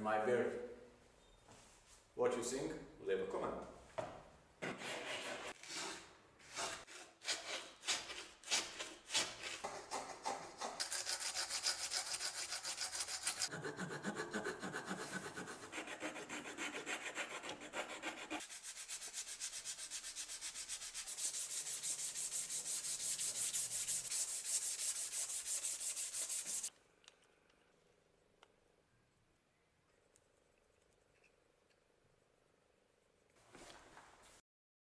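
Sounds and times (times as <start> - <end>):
file rasping on wood: 6.6 - 26.7.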